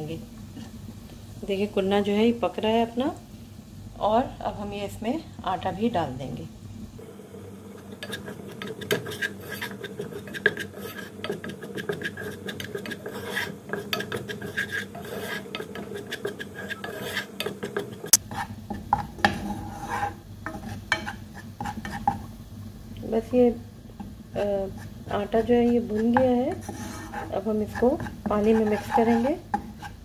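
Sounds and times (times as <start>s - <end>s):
spoon scraping flour in pan: 7.8s - 22.3s, 24.0s - 30.0s.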